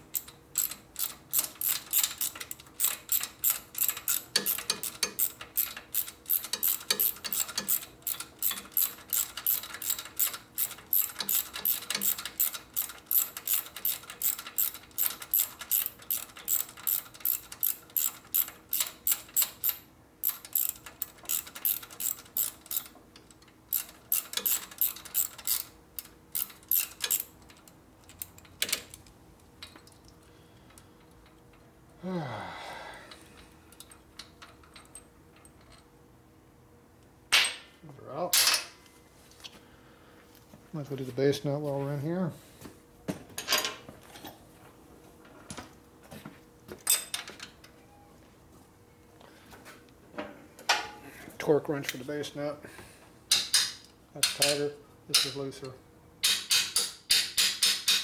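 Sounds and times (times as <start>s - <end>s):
socket ratchet clicking: 0.0s - 30.0s, 56.2s - 58.0s.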